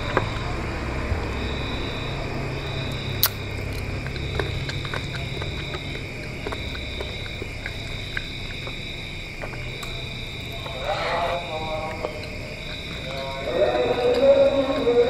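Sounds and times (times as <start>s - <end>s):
chewing and wet mouth clicks: 0.0s - 15.0s
steady high-pitched whine: 0.0s - 15.0s
sharp click: 3.2s - 3.4s.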